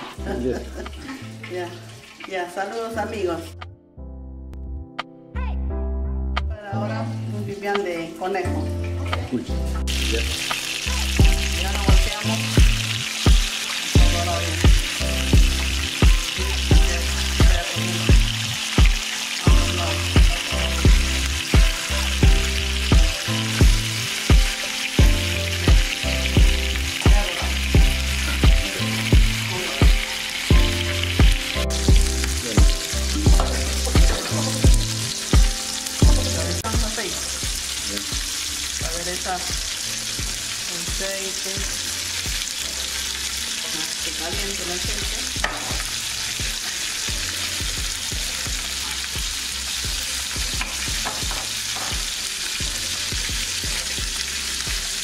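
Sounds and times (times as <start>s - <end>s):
meat sizzling in hot oil: 0.0s - 3.6s, 6.8s - 55.0s
background music with beat: 4.8s - 5.4s, 8.6s - 43.2s, 44.4s - 55.0s.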